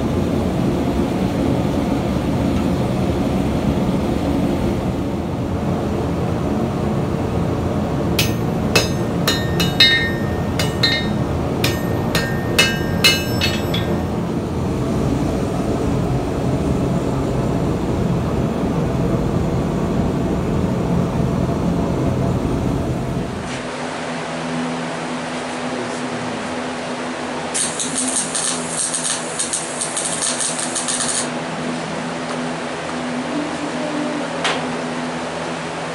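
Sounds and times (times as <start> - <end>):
hammer striking steel on anvil: 8.2 - 14.3.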